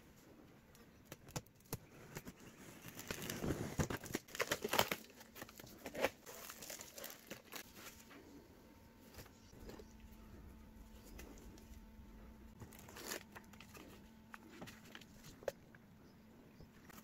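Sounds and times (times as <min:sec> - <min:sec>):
packing tape tearing: 0:01.3 - 0:07.7, 0:12.6 - 0:14.0
cardboard flaps scraping and rustling: 0:02.1 - 0:08.1.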